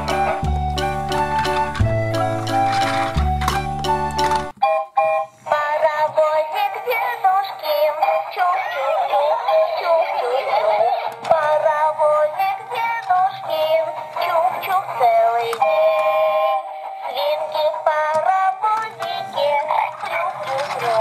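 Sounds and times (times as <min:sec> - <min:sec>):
toy train song through small speaker: 0:04.3 - 0:21.0.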